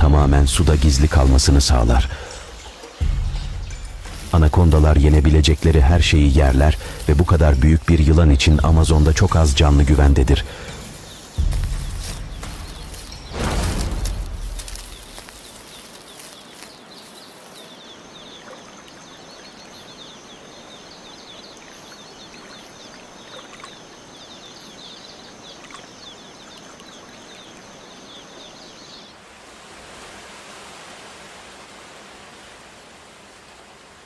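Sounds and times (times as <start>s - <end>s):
rainforest hiss: 0.0s - 34.0s
rapid high chirping: 2.0s - 16.5s.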